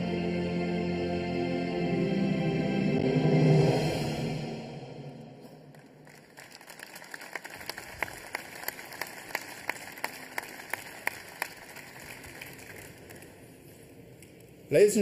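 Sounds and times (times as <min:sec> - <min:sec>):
audience applauding: 0:05.7 - 0:13.4
sharp evenly spaced claps: 0:05.7 - 0:13.4.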